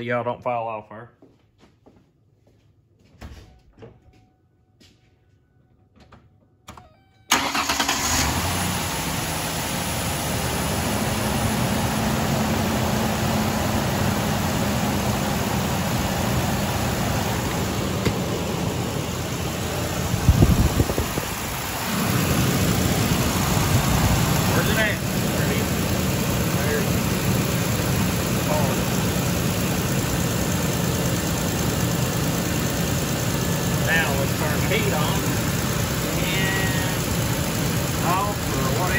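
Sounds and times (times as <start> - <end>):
truck engine starting and idling: 6.6 - 38.9
low rumble: 17.5 - 29.6.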